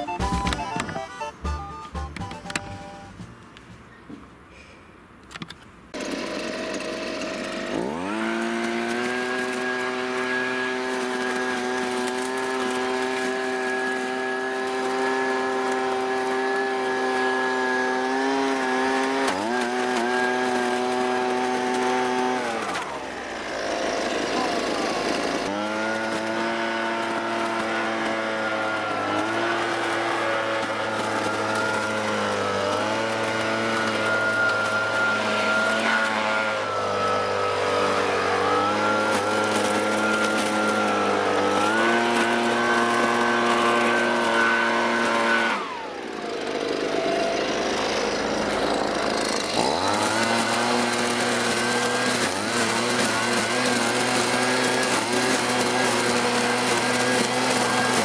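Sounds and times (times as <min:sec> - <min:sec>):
leaf blower engine revving: 0:05.9 - 0:58.0.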